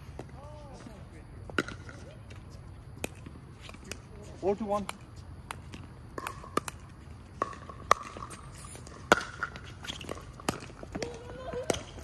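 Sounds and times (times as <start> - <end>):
ball bouncing on hard court: 1.5 - 2.0, 4.8 - 12.0.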